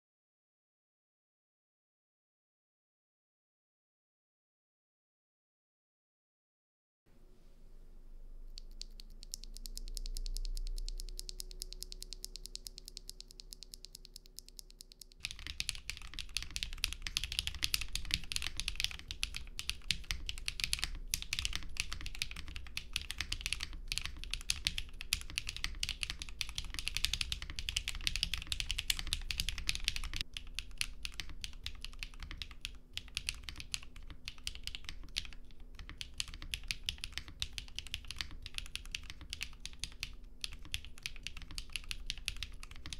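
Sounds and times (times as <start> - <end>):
keyboard typing clacks: 8.6 - 42.9.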